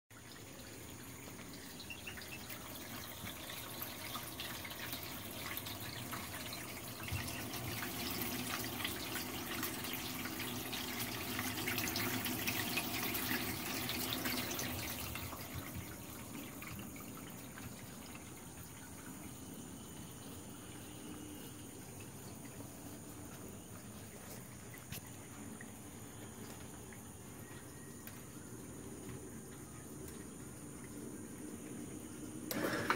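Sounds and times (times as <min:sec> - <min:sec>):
water trickling and dripping: 0:00.1 - 0:32.9
electric pump humming: 0:32.3 - 0:32.9.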